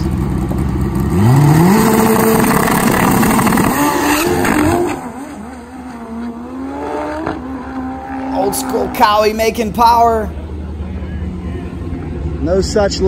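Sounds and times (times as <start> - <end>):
motorcycle engine at full throttle: 0.0 - 9.4.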